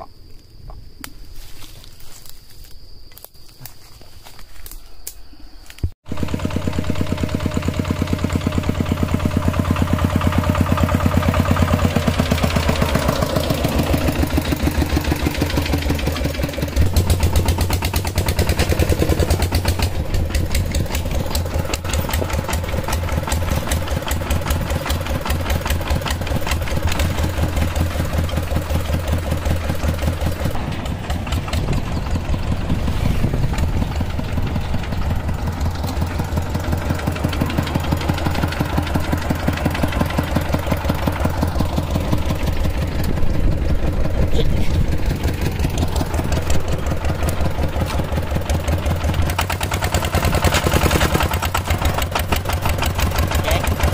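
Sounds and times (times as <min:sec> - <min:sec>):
diesel engine chugging: 0:06.0 - 0:53.9.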